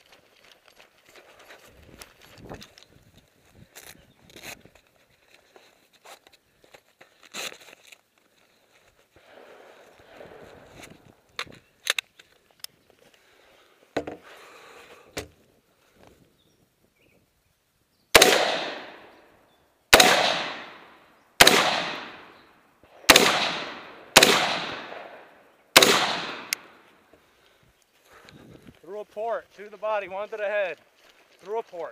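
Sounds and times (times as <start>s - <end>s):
rifle shots: 18.2s - 19.2s, 19.9s - 22.4s, 23.0s - 26.8s.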